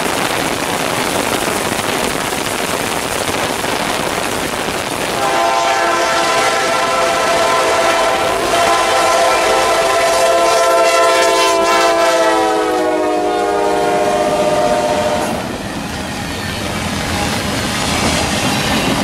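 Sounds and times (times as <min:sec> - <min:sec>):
heavy rain: 0:00.0 - 0:19.0
train cars rumbling on rails: 0:00.0 - 0:19.0
locomotive air horn: 0:05.1 - 0:15.5.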